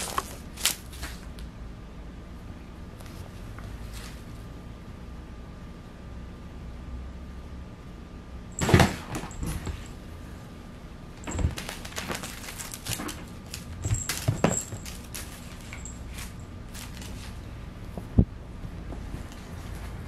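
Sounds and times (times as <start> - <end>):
cat scratching and scuffling: 11.2 - 18.2.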